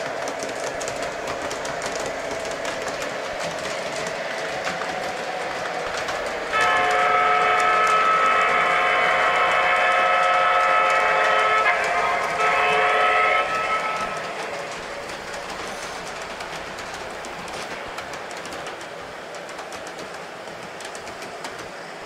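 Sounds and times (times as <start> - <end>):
wheels clicking over track: 0.0 - 22.0
train horn chord: 6.5 - 14.7.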